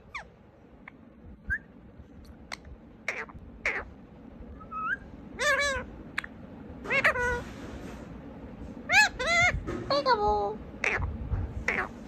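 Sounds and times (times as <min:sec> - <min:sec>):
parrot calls: 0:00.0 - 0:01.7, 0:02.5 - 0:07.5, 0:08.8 - 0:10.2, 0:10.8 - 0:12.0
parrot chirps and clicks: 0:00.1 - 0:03.8, 0:06.1 - 0:07.4.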